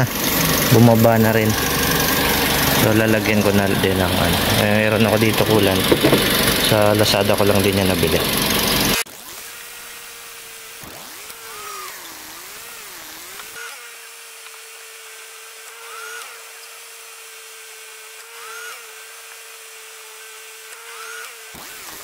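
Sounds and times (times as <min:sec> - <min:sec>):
car engine idling with whine: 0:00.0 - 0:09.0.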